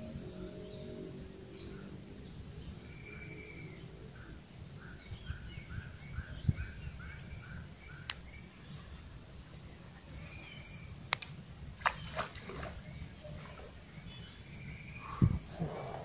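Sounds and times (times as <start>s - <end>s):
steady high-pitched whine: 0.0s - 11.8s
birds chirping: 0.0s - 16.0s.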